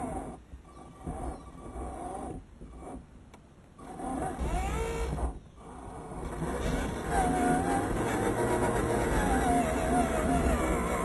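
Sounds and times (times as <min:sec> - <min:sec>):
toy truck motor whining: 0:03.8 - 0:11.0.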